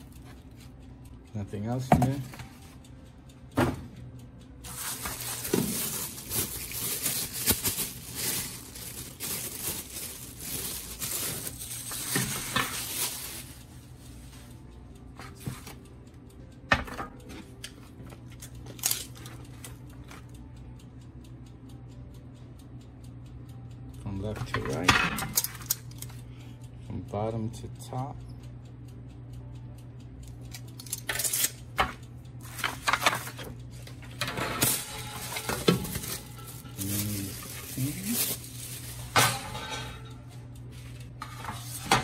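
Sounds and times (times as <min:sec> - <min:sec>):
plastic bag crinkling: 0:04.7 - 0:13.6, 0:34.7 - 0:39.2
metal rack clinking: 0:34.1 - 0:40.3.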